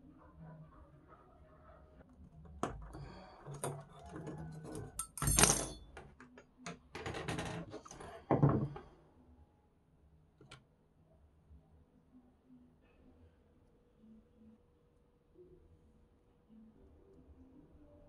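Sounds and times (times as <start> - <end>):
pliers clicking and scraping wire: 2.3 - 6.8.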